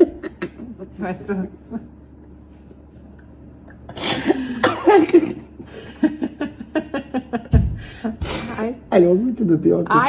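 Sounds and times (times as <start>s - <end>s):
man and woman laughing: 0.0s - 0.9s, 4.0s - 8.2s
coughing: 3.7s - 5.7s.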